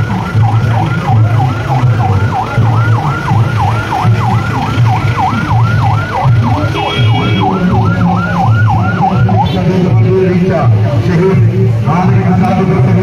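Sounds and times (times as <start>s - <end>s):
siren yelping: 0.0s - 10.0s.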